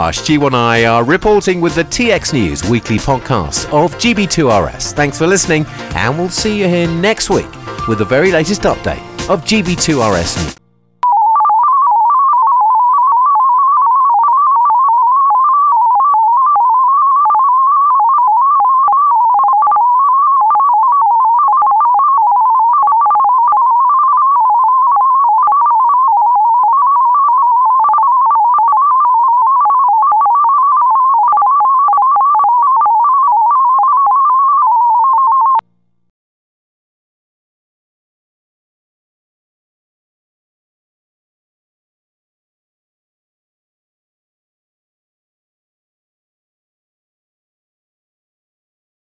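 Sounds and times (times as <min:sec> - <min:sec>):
digital radio data tone: 0:11.1 - 0:35.6.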